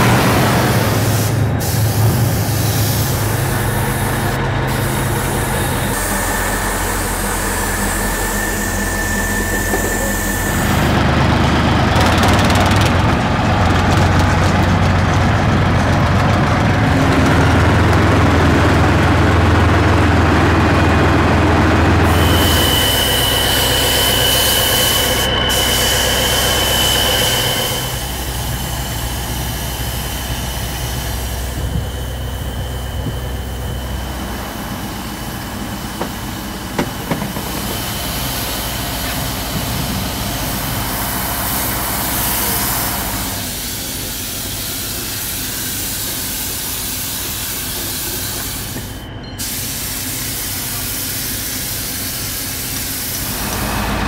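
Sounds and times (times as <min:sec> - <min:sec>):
paint spray gun hissing: 0:01.0 - 0:02.0.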